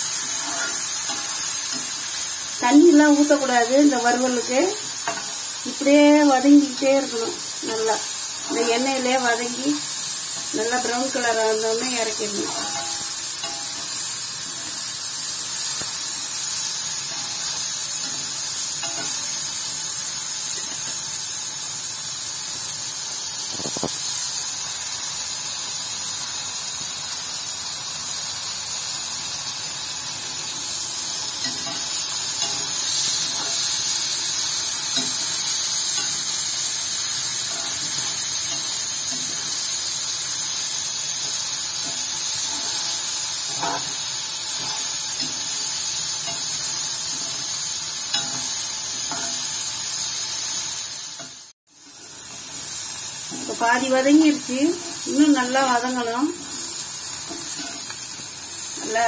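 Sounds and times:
gourds sizzling in oil: 0.0s - 59.0s
spoon knocking pan: 41.2s - 49.6s.

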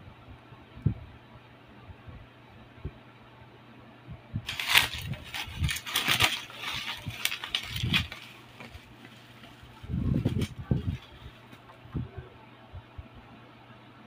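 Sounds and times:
bubble wrap crinkling: 4.5s - 11.6s.

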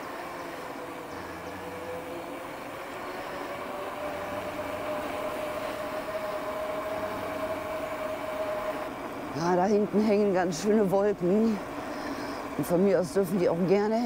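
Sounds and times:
electric bike motor whining: 0.0s - 10.4s
steady rushing noise: 0.0s - 14.0s.

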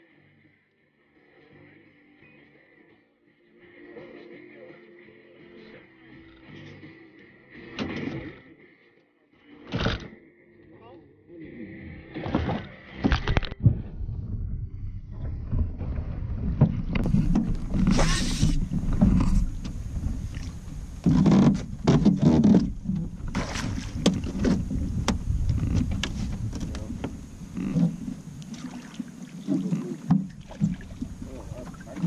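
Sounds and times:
wind buffeting microphone: 13.6s - 21.9s, 22.6s - 28.4s
knocks and scrapes on boat hull: 15.1s - 19.8s, 21.0s - 23.3s, 24.0s - 28.1s.

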